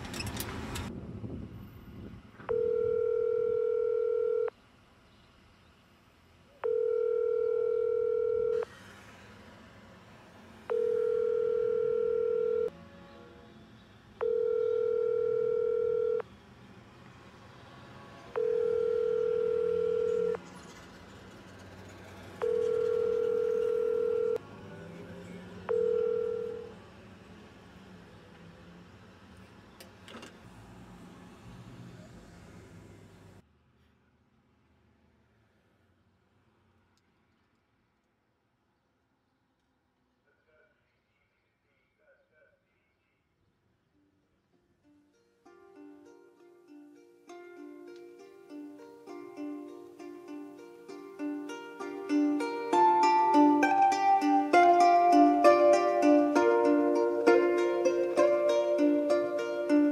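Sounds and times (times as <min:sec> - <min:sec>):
telephone ringback tone: 0:02.5 - 0:04.5, 0:06.6 - 0:08.7, 0:10.7 - 0:12.7, 0:14.2 - 0:16.2, 0:18.3 - 0:20.4, 0:22.4 - 0:24.4, 0:25.7 - 0:26.8.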